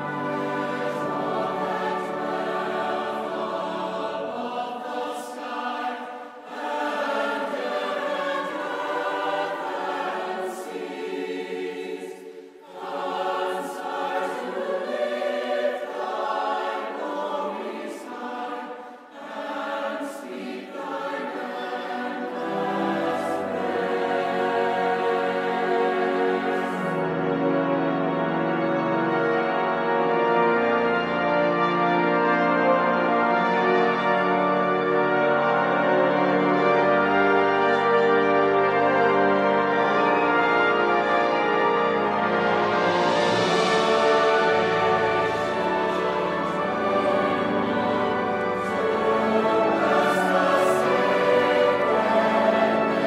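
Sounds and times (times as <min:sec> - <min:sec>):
orchestral accompaniment: 0:00.0 - 0:18.6, 0:19.2 - 0:53.0
choir singing a hymn: 0:00.0 - 0:53.0.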